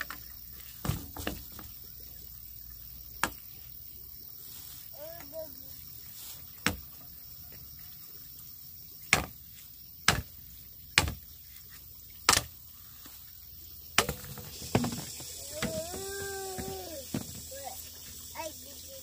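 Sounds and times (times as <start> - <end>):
machete chopping bamboo: 6.6 - 6.9, 9.1 - 9.4, 10.0 - 11.3, 12.2 - 12.6, 13.9 - 15.0.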